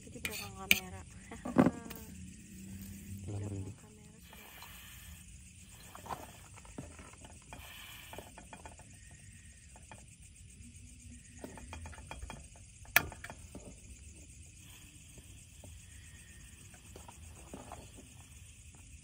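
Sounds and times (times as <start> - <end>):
utensils clicking on wok: 0.2 - 1.0.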